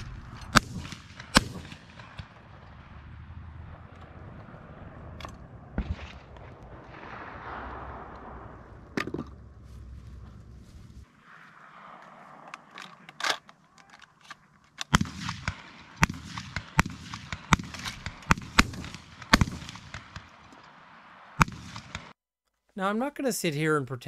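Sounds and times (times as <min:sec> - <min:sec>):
shotgun shots: 0:00.0 - 0:09.2, 0:14.9 - 0:22.2.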